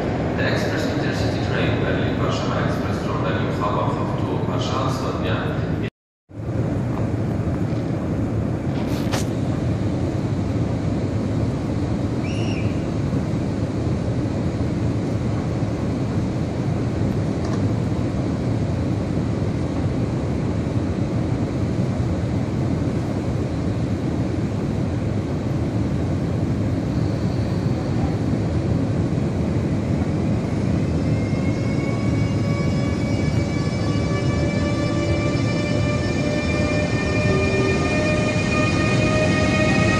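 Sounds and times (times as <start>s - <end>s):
locomotive low hum and rumble: 0.0s - 39.9s
rising electric motor whine: 30.4s - 39.9s.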